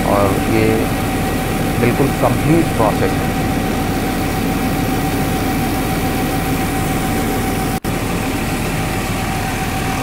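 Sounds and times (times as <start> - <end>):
rice mill mechanical drone: 0.0 - 10.0.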